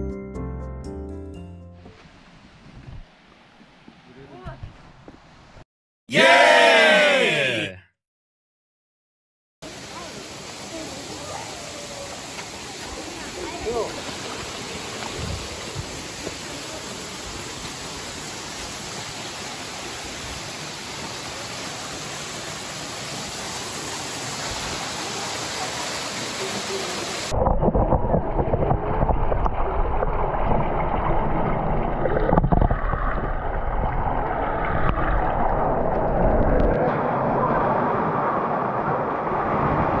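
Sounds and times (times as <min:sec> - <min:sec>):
waterfall rushing: 0:09.6 - 0:27.4
muffled underwater rush: 0:09.6 - 0:40.0.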